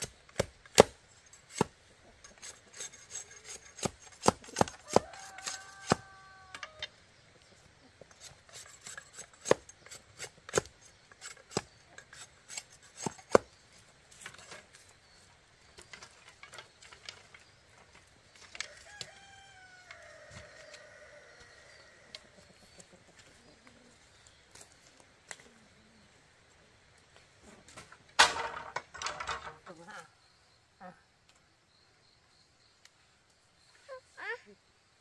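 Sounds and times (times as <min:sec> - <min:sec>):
rooster crowing: 0:04.7 - 0:06.9, 0:18.6 - 0:22.3.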